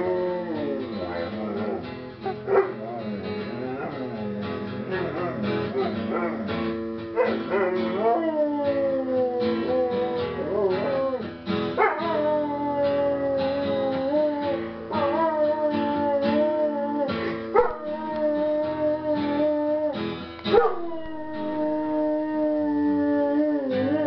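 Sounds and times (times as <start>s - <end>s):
dog howling: 0.0s - 3.0s, 3.6s - 4.4s, 5.0s - 6.6s, 7.2s - 24.0s
strummed acoustic guitar: 0.0s - 21.5s.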